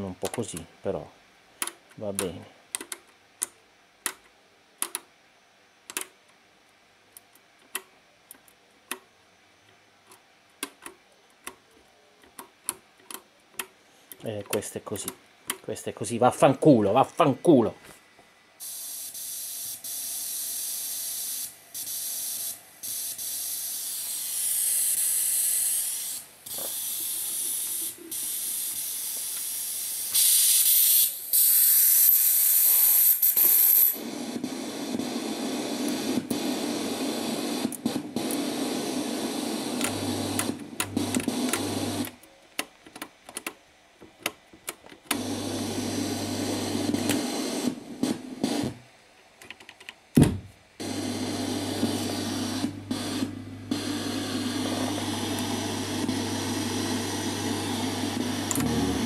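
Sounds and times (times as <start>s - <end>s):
equalizer hiss and rushing noise: 58.5s - 59.0s
low hum: 58.5s - 59.0s.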